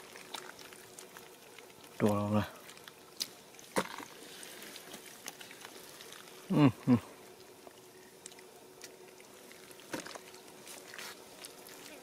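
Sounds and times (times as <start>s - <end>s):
hands squelching in wet mud: 0.0s - 12.0s
short vocal sounds: 6.5s - 7.1s.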